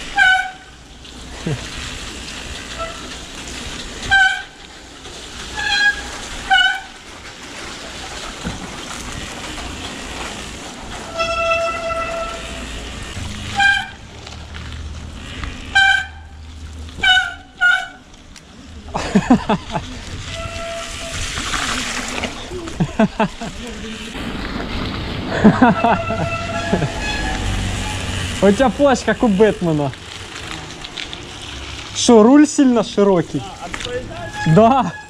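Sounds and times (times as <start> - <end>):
bicycle brakes squealing: 0.0 - 3.3, 4.0 - 4.6, 5.3 - 7.1, 10.9 - 14.1, 15.2 - 16.4, 17.0 - 18.1, 20.2 - 22.7, 25.3 - 30.8, 33.6 - 35.0
rain: 0.0 - 35.0
steady rolling noise: 0.0 - 35.0.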